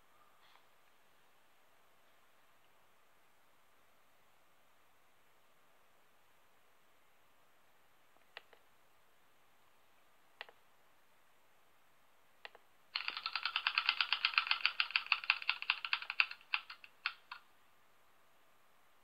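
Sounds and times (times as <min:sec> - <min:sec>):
mouse clicks: 0:08.2 - 0:08.7, 0:10.4 - 0:10.6, 0:12.4 - 0:12.7
spinning wheel ticking: 0:13.0 - 0:17.4.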